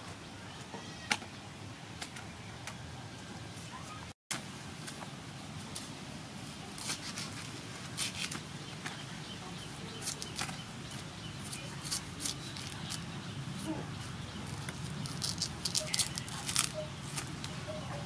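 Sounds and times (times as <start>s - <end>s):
knife shaving bamboo shoot: 6.7s - 8.4s, 9.7s - 17.5s.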